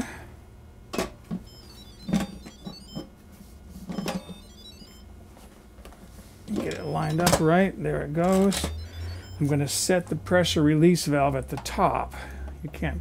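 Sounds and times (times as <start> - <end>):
electronic jingle of high tones: 1.5 - 3.1, 4.0 - 5.1, 6.7 - 7.4, 8.5 - 10.0.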